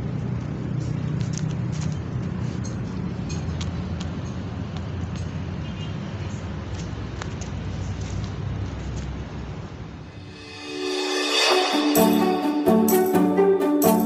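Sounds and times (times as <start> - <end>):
traffic engine rumble: 0.0 - 10.2.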